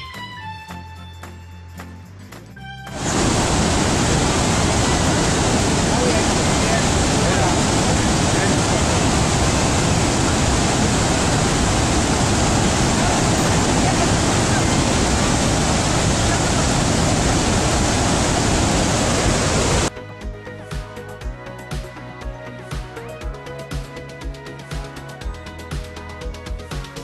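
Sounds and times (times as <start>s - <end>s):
waterfall roaring: 2.9s - 19.9s
music with steady beat: 19.9s - 27.0s.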